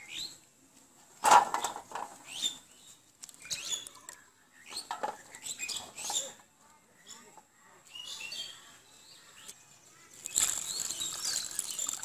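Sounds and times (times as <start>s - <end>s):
small birds chirping: 0.0s - 0.5s, 1.6s - 12.0s
water dripping: 10.3s - 12.0s.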